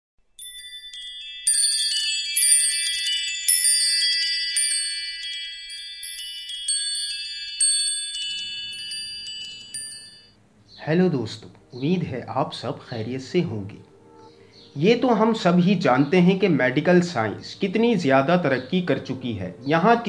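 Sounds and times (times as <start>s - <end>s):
sparkling bell-like chimes: 0.2s - 10.4s.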